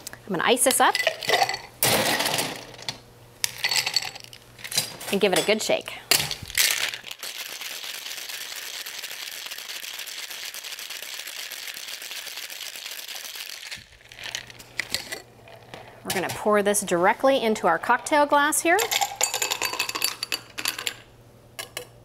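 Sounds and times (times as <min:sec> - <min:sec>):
ice cubes rattling in a shaker: 0:06.5 - 0:15.7.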